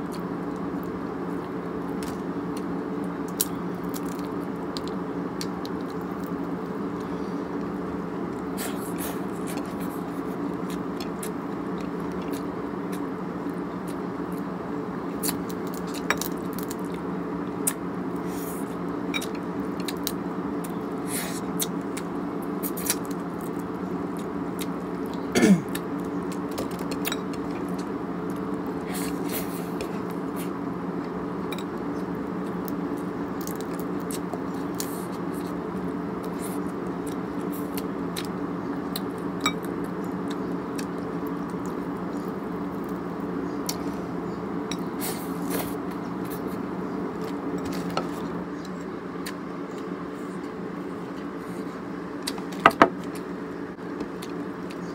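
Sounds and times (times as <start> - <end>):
background hum: 0.0 - 54.9.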